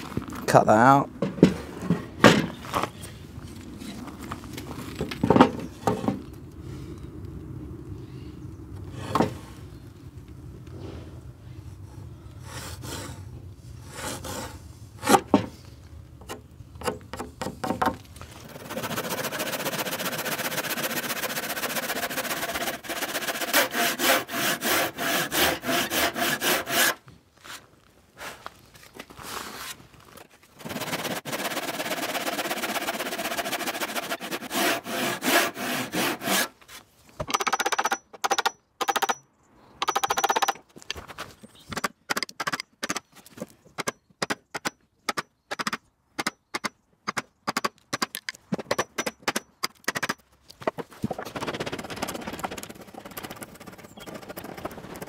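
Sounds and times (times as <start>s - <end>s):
handsaw cutting wood: 13.9s - 15.2s, 18.4s - 27.0s, 30.6s - 36.6s.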